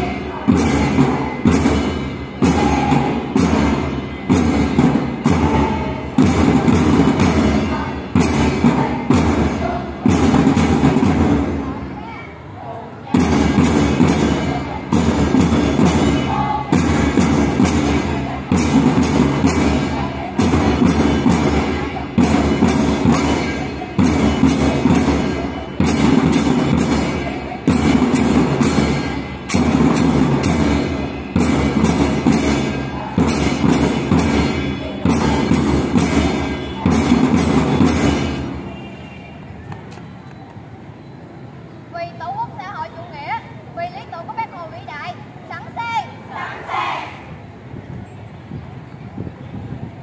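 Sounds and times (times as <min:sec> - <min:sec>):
ceremonial drums beating: 0:00.0 - 0:12.0, 0:13.1 - 0:39.6.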